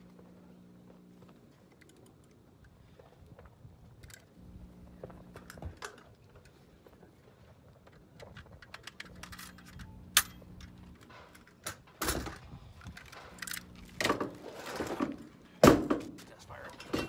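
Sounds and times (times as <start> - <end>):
tool-belt gear jangling: 8.2 - 11.6
tool knocks and metallic rattles: 8.2 - 17.0.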